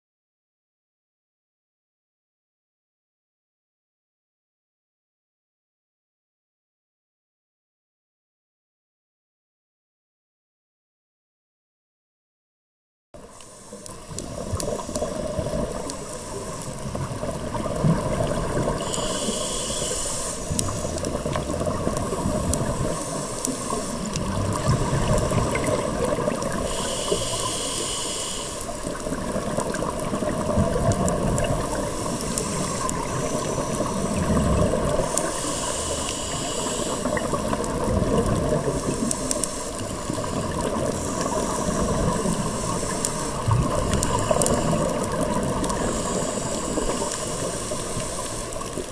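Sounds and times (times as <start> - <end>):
bubbling exhaled air: 14.1 - 48.9
regulator hissing inhales: 18.6 - 21.0, 22.0 - 24.4, 26.5 - 28.9, 31.6 - 34.2, 34.9 - 37.8, 38.6 - 48.8.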